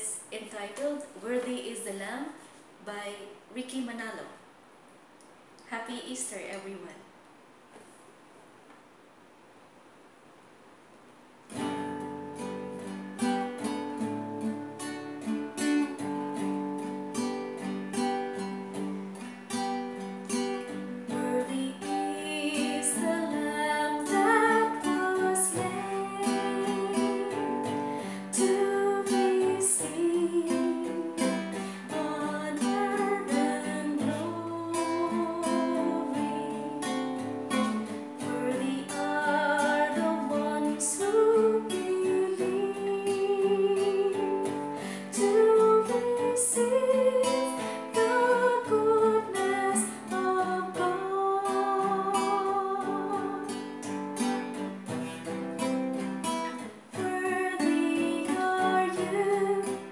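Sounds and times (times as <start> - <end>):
acoustic guitar strumming: 11.5 - 59.9
woman singing: 21.0 - 54.4, 56.5 - 59.9.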